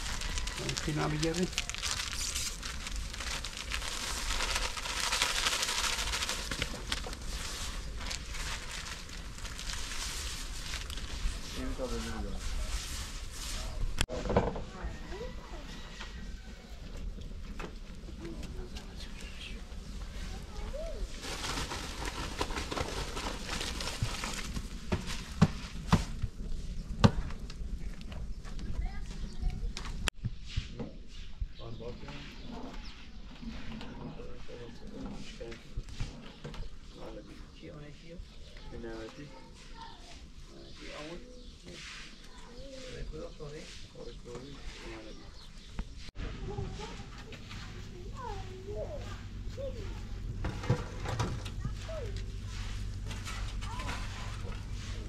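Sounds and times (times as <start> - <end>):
rice pouring into a pot: 0.0 - 10.9
packet crinkling: 0.0 - 11.5, 21.2 - 24.8
wood fire crackling: 0.0 - 14.1, 16.5 - 30.2.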